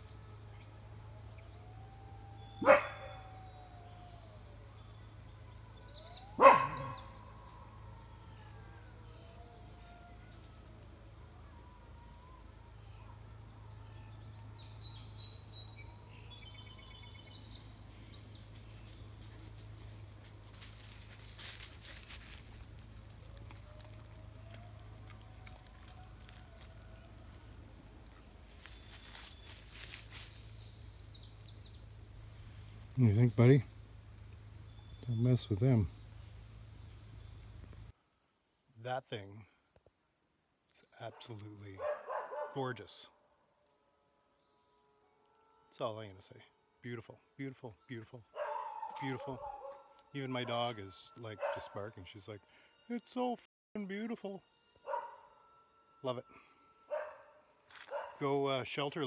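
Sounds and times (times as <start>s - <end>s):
bird chirping: 0.0s - 37.9s
rustling through undergrowth: 0.0s - 37.9s, 56.9s - 58.2s
steady low hum: 0.0s - 38.0s
faint bird chirps: 2.3s - 11.3s, 28.1s - 33.8s, 34.6s - 37.6s
dog barking: 2.6s - 3.3s, 6.3s - 7.2s, 41.2s - 42.7s, 48.3s - 50.6s, 51.4s - 52.0s, 54.8s - 55.3s, 56.9s - 58.2s.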